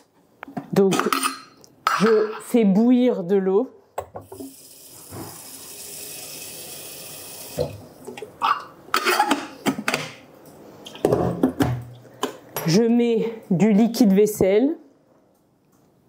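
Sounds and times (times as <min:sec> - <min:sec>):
tap water running into kettle: 0:04.2 - 0:07.9.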